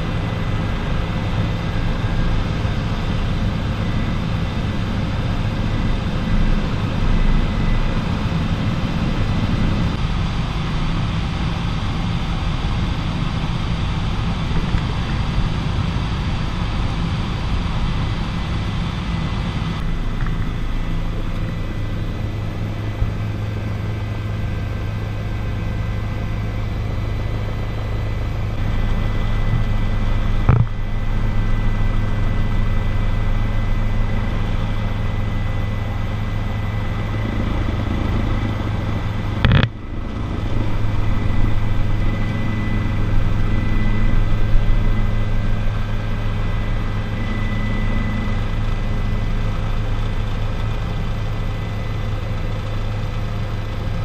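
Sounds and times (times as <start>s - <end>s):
helicopter rotor and engine drone: 0.0s - 54.0s
thin high whine: 26.4s - 52.4s.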